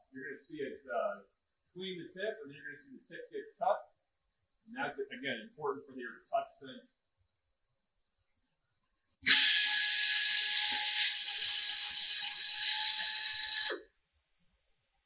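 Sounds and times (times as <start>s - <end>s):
torch reamer hissing and whining: 9.2s - 13.8s.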